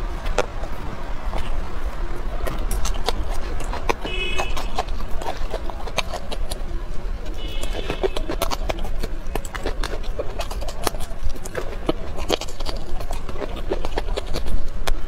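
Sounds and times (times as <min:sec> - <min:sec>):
crunching and chewing peppers: 0:00.0 - 0:15.0
wet mouth clicks and smacks: 0:00.0 - 0:15.0.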